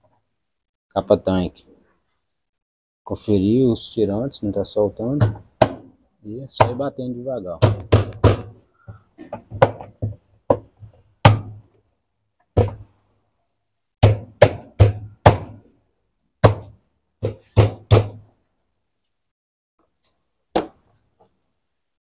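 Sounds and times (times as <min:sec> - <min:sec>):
plastic cover knocked by hand: 0:07.6 - 0:08.6, 0:12.6 - 0:12.9.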